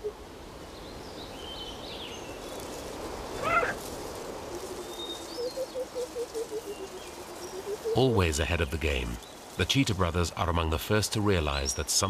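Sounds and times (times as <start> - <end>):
cheetah chirping call: 3.4 - 3.8.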